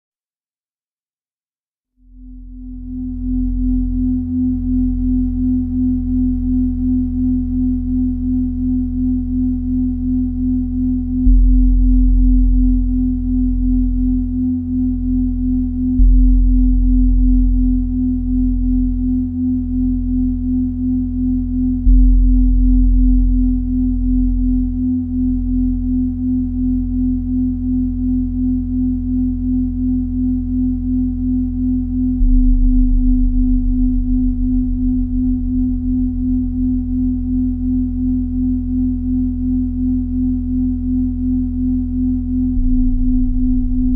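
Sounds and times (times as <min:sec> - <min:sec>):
deep bass drone: 0:02.0 - 0:43.9
pulsing sine tone: 0:02.0 - 0:43.9.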